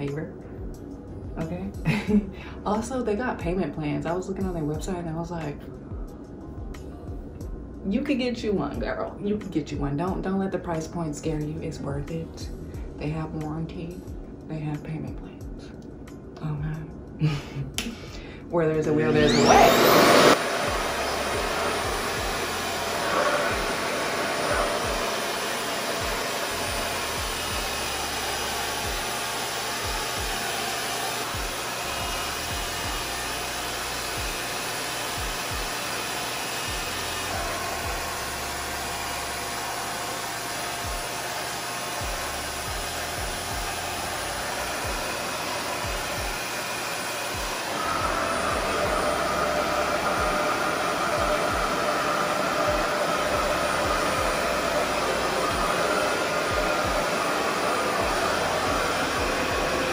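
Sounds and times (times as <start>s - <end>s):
hair dryer whine: 0.8s - 3.0s, 17.2s - 59.9s
hair dryer running: 0.8s - 3.6s, 17.2s - 59.9s.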